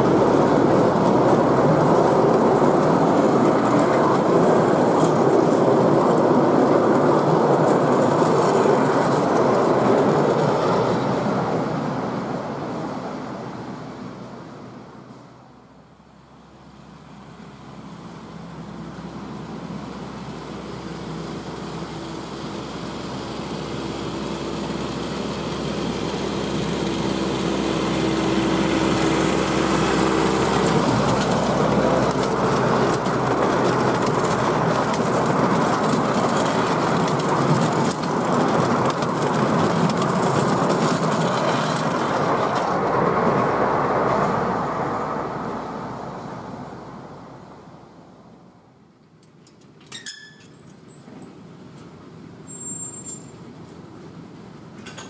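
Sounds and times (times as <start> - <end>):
wheels clicking over rail joints: 0.0 - 12.0, 25.7 - 45.0, 49.0 - 55.0
miniature train passing: 0.0 - 55.0.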